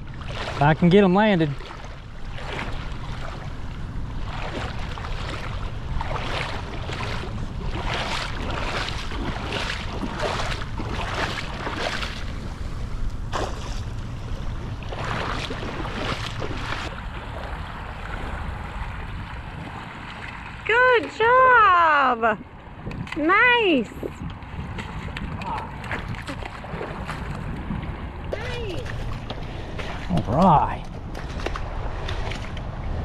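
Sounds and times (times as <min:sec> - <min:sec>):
water splashing: 0:00.0 - 0:33.0
wind on microphone: 0:22.4 - 0:33.0.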